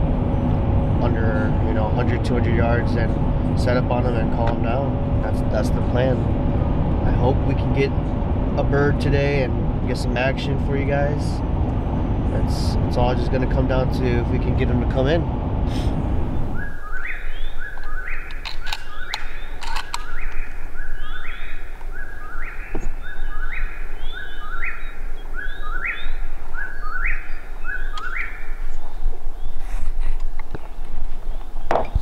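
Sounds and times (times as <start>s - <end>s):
steady low rumble: 0.0s - 32.0s
bird calling: 15.7s - 30.2s.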